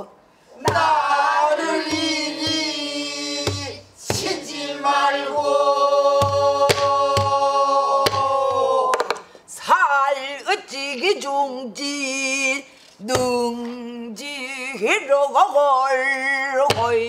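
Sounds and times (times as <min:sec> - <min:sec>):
barrel drum strokes: 0:01.7 - 0:04.6, 0:05.3 - 0:08.4.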